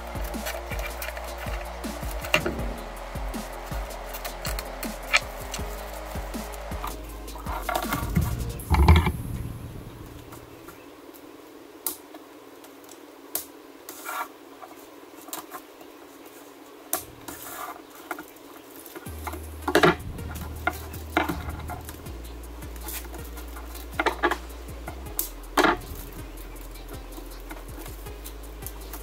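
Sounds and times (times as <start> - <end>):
zip ties clicking tight: 0.0 - 8.2.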